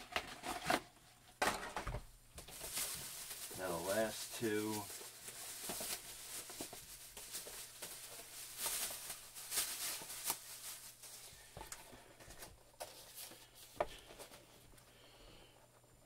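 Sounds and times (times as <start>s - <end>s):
plastic bag rustling: 0.0s - 14.8s.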